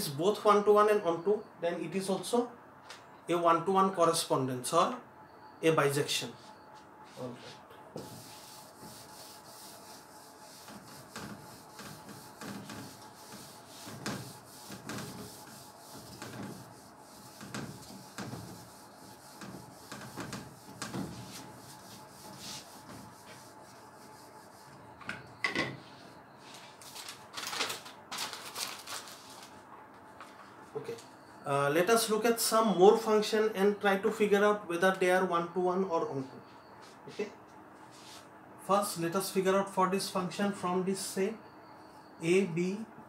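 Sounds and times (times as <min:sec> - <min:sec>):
eraser wiping a whiteboard: 0:07.1 - 0:24.9
paper rustling: 0:26.5 - 0:29.6.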